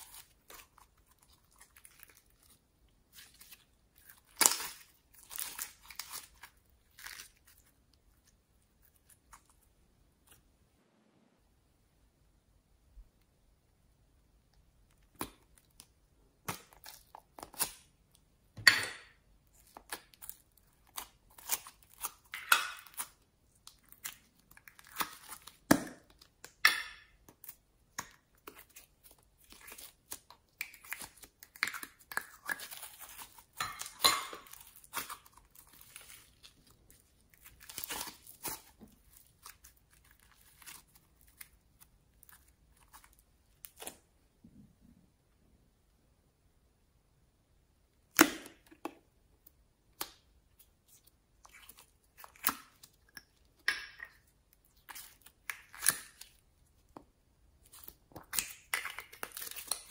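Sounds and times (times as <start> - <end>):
slime squelching and crackling: 0.0 - 10.4, 19.4 - 44.1, 49.9 - 59.9.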